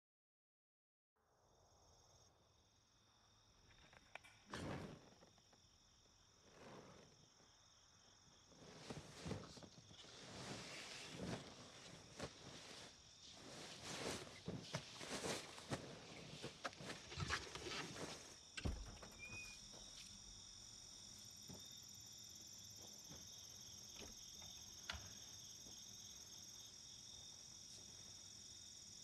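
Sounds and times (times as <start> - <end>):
crickets chirping: 1.2 - 29.0
rustling and knocks: 8.7 - 20.1.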